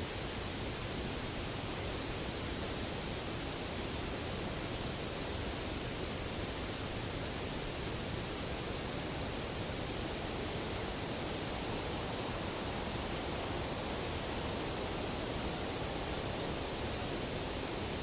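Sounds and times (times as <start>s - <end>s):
steady hiss: 0.0s - 18.0s.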